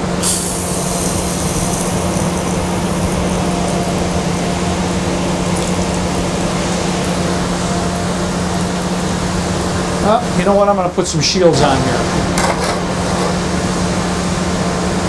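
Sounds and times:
grinder humming: 0.0 - 10.4
coolant water spraying: 0.0 - 13.6.

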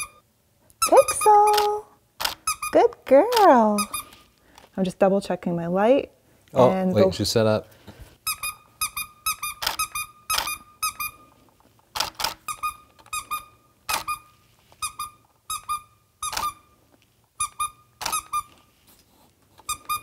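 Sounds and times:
squeaky dog toy chirps: 0.0 - 0.2, 0.8 - 3.0, 3.6 - 4.2, 8.2 - 11.3, 12.4 - 16.8, 17.4 - 18.6, 19.6 - 20.0.

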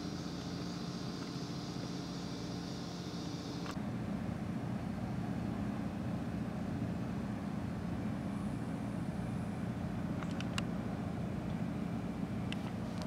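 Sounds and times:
high hiss: 0.0 - 3.8
click: 10.2 - 10.7.

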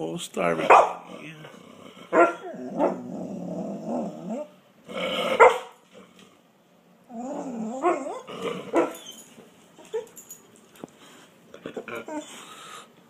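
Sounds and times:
dog barking: 0.6 - 1.1, 2.1 - 3.0, 5.4 - 5.8, 8.7 - 9.0
dog grumbling: 0.6 - 6.2, 7.1 - 9.0, 11.5 - 12.5.

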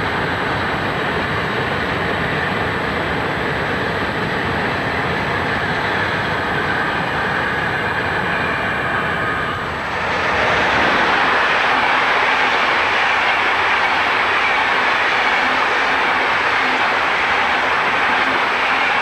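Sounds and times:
train coaches rolling past: 1.9 - 19.0.

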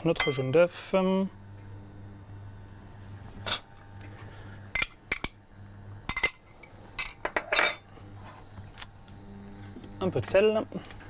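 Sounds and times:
glass kitchenware clinking: 7.0 - 7.8.

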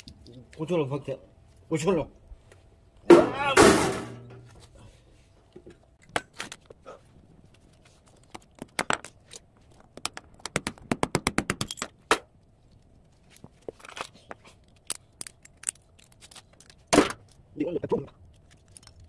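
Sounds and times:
metal parts clicking and clattering: 18.1 - 19.0.

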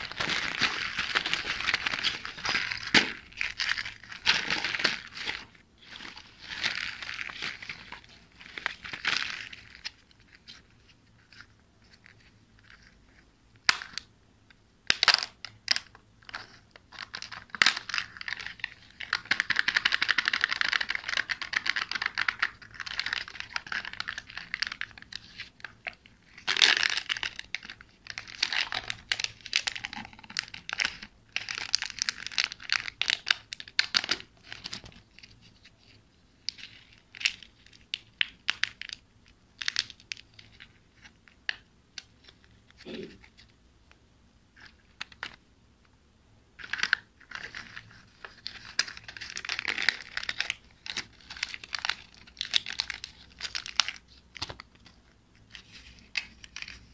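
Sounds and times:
wrappers crinkling: 0.0 - 12.9, 17.0 - 39.0, 46.6 - 54.9.

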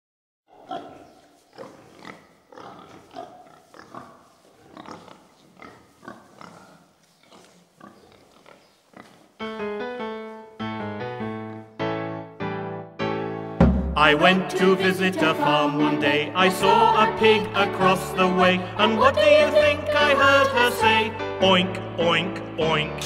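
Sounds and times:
pigs grunting: 0.5 - 9.4
piano-like keyboard tune: 9.4 - 14.6.

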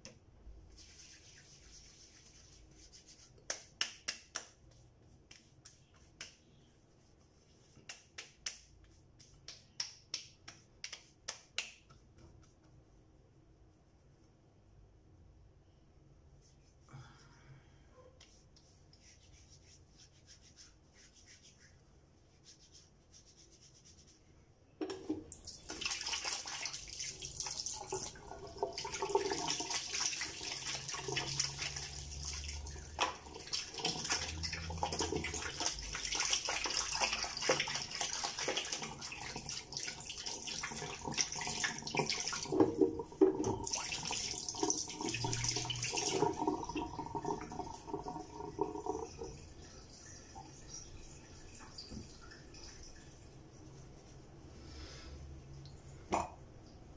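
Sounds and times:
tap water running into sink: 24.8 - 49.6.

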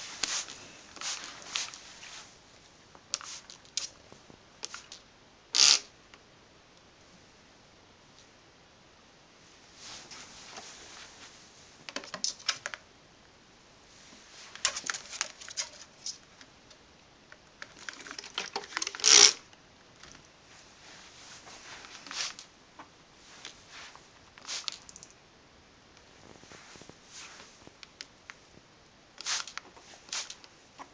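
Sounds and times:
spray bottle squirting water: 17.8 - 19.4, 24.4 - 24.9, 29.2 - 30.4.

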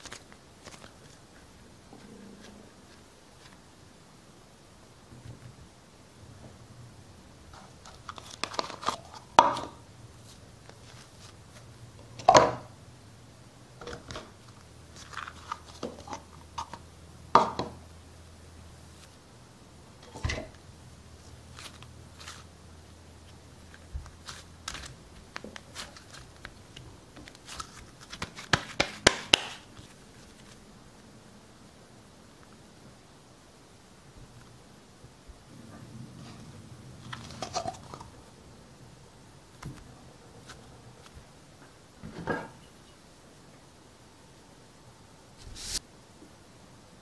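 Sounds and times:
modeling dough squelching: 21.1 - 30.7.

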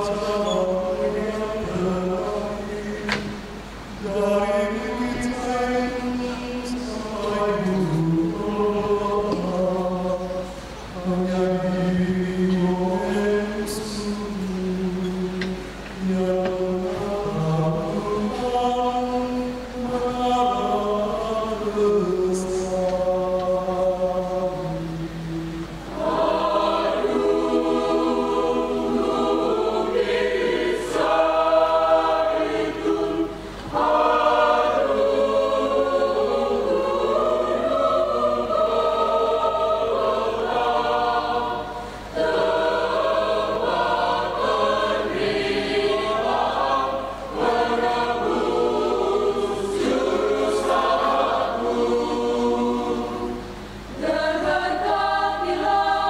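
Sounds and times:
mixed choir singing a hymn: 0.0 - 56.0.

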